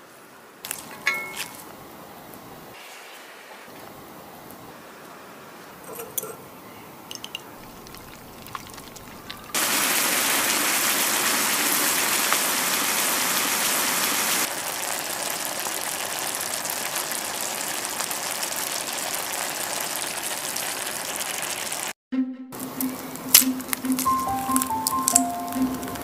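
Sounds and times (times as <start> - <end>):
meat sizzling in grill pan: 9.6 - 21.9.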